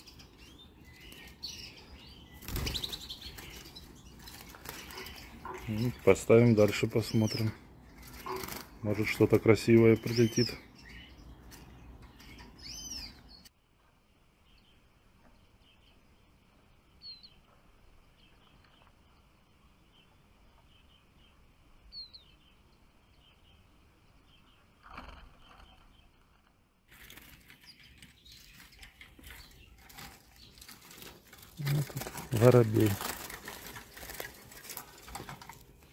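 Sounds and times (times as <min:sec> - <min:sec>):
songbirds chirping: 0:00.0 - 0:35.9
rustle of wings: 0:00.9 - 0:10.6, 0:24.8 - 0:35.9.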